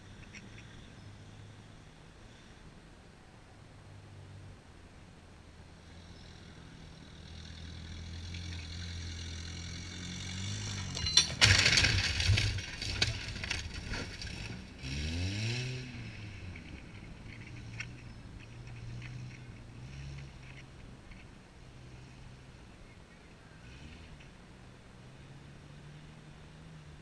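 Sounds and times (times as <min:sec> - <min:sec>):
engine revving: 0:05.8 - 0:20.7, 0:23.6 - 0:24.3
truck crashing through wooden fence: 0:10.4 - 0:15.8
wood cracks and knocks: 0:11.0 - 0:14.6.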